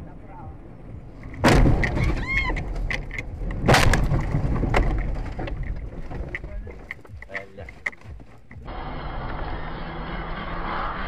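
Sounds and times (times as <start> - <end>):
heavy low rumble: 0.0 - 11.0
vehicle crash bang: 1.2 - 6.8.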